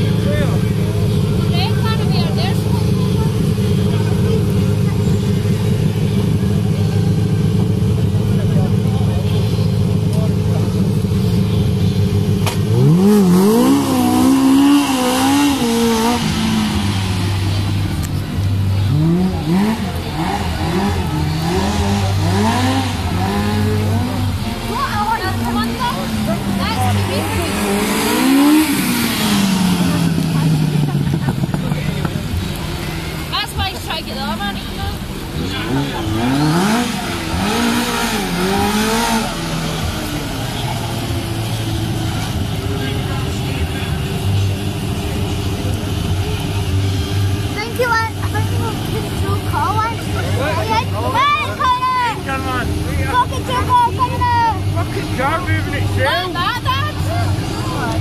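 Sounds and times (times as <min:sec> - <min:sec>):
car engine revving: 0:00.0 - 0:58.0
rain hissing on wet tarmac: 0:28.8 - 0:36.0.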